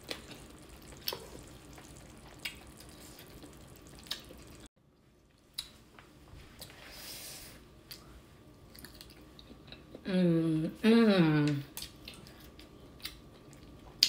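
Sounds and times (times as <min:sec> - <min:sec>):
broth simmering hiss: 0:00.0 - 0:04.7.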